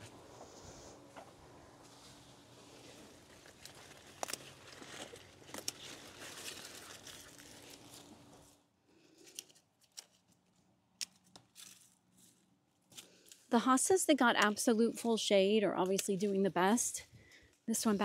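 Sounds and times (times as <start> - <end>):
dead leaves rustling and crunching: 2.0 - 8.6.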